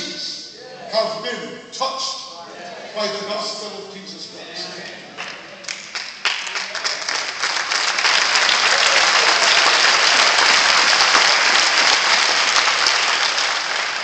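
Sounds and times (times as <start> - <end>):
audience applauding: 5.1 - 14.0.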